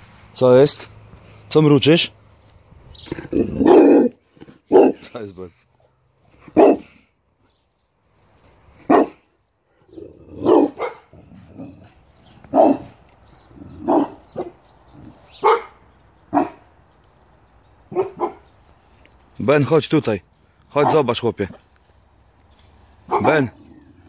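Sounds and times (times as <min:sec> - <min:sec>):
dog barking: 0:03.6 - 0:05.1, 0:06.5 - 0:06.9, 0:08.9 - 0:09.2, 0:10.4 - 0:11.2, 0:12.5 - 0:13.0, 0:13.8 - 0:14.6, 0:15.4 - 0:16.7, 0:17.9 - 0:18.5, 0:20.8 - 0:21.0, 0:23.1 - 0:23.4.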